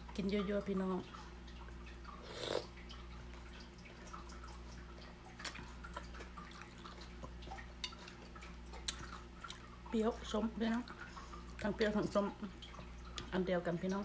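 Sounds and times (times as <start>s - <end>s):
low electrical hum: 0.0s - 14.0s
person chewing wetly: 1.6s - 9.9s.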